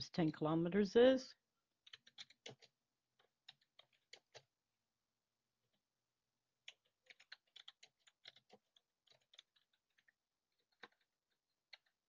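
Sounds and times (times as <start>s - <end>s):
typing on computer keyboard: 1.8s - 4.5s, 6.6s - 12.0s.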